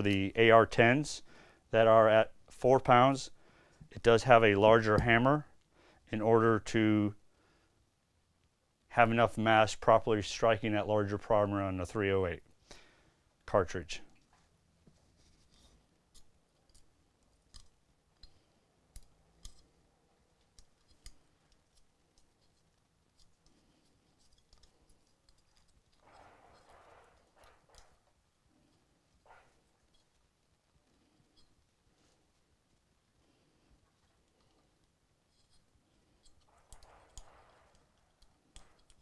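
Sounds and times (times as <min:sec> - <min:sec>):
wrench winding small screw ticks: 0:24.2 - 0:25.8
metal wrench clicks: 0:38.0 - 0:39.0.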